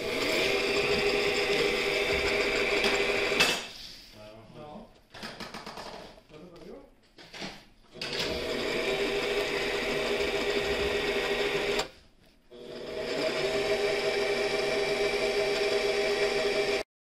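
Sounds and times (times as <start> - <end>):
peristaltic pump whining: 0.0 - 3.4, 8.0 - 11.9, 12.5 - 16.8.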